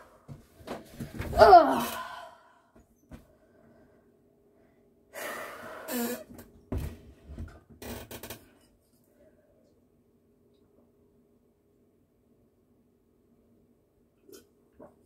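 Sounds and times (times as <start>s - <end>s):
person breathing heavily: 5.1s - 6.0s.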